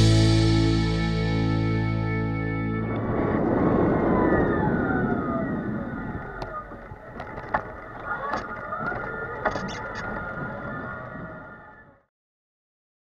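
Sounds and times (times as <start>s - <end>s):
road and wind noise: 2.5s - 9.8s.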